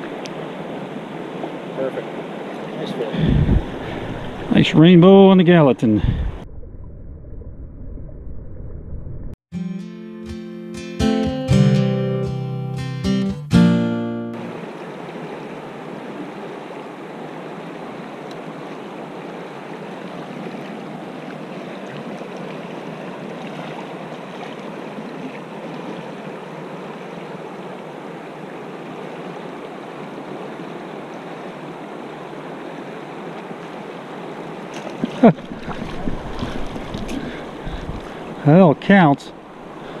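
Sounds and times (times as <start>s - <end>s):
wind on microphone: 3.1s - 4.6s, 5.9s - 9.4s, 35.4s - 38.4s
microphone bumps: 35.8s - 38.1s.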